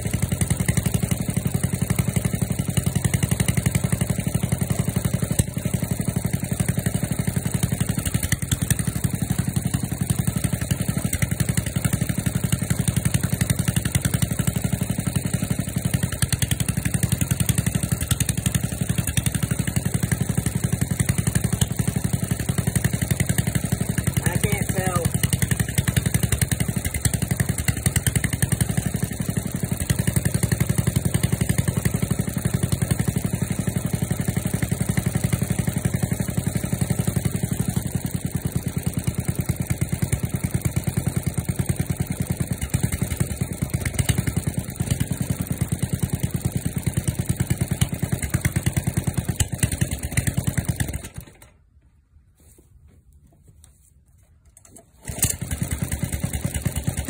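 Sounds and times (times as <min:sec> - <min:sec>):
small engine idling: 0:00.0 - 0:52.0, 0:54.4 - 0:57.0.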